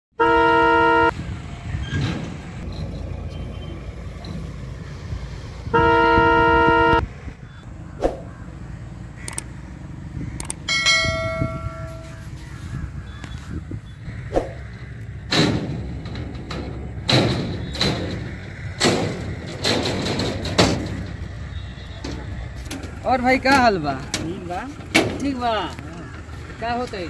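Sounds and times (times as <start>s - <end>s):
train horn blasts: 0.2s - 1.2s, 5.7s - 7.0s
ringing chime: 10.7s - 12.0s.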